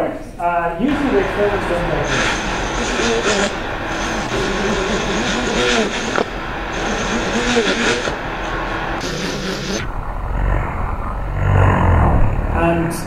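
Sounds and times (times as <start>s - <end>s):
high hiss: 0.8s - 10.0s
drone motors buzzing: 0.8s - 12.6s.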